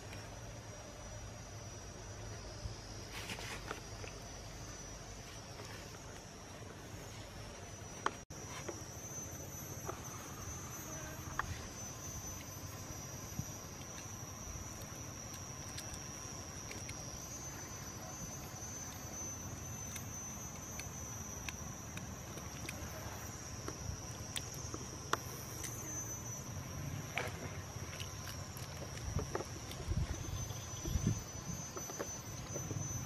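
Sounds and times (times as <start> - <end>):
high insect drone: 0.0 - 33.0
eggshell peeling crackles: 27.0 - 32.6.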